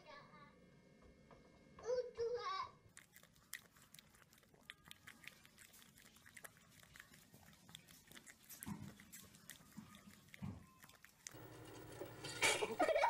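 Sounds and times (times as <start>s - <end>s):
puppy lapping milk: 2.9s - 13.0s.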